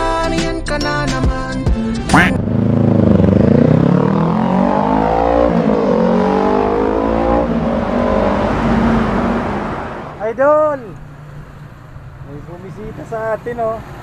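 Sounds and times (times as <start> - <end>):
motorcycle engine revving: 2.1 - 10.3.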